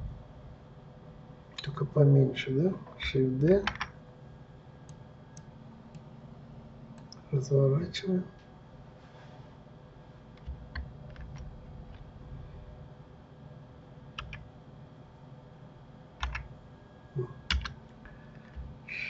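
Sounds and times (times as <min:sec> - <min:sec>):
low steady hum: 0:00.0 - 0:19.0
keyboard and mouse clicks: 0:03.5 - 0:04.0, 0:10.4 - 0:12.1, 0:14.2 - 0:14.4, 0:16.2 - 0:16.5, 0:17.5 - 0:17.8.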